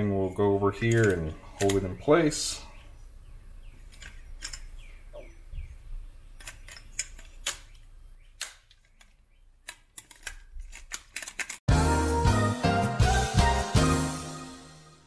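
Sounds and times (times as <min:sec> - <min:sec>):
plastic connector clicks and rattles: 0:08.4 - 0:11.6.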